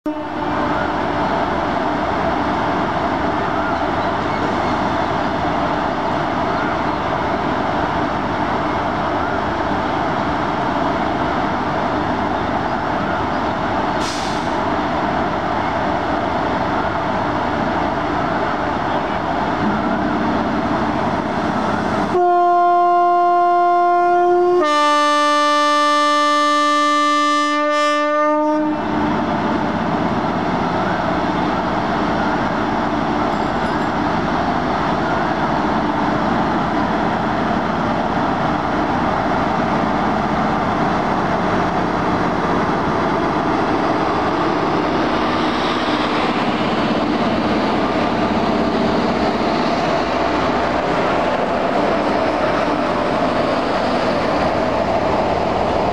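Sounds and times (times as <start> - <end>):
locomotive horn: 0.1 - 0.9, 22.1 - 29.2
electric locomotive humming: 0.1 - 55.9.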